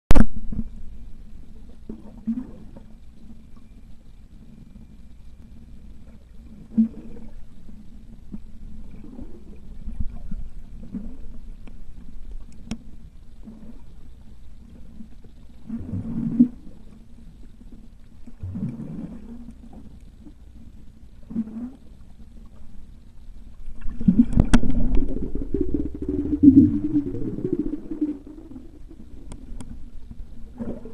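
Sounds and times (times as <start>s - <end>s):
low underwater rumble: 0.1s - 30.9s
underwater gurgling surges: 6.6s - 7.4s, 15.6s - 16.8s, 18.4s - 19.8s, 23.6s - 30.9s.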